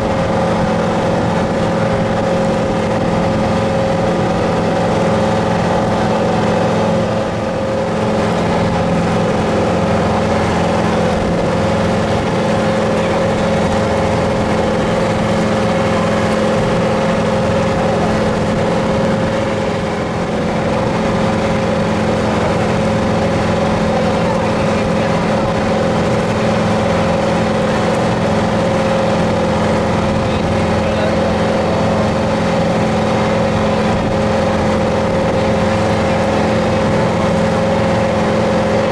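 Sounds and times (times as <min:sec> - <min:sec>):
motorboat engine droning: 0:00.0 - 0:38.9
water rushing: 0:00.0 - 0:38.9
wind: 0:00.0 - 0:38.9.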